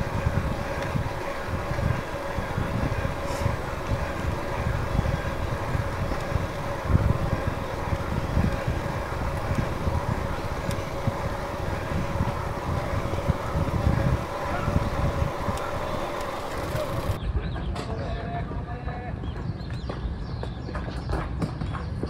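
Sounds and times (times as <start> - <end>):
faint steady motor whine: 0.0 - 17.2
wind buffeting microphone: 0.0 - 17.4.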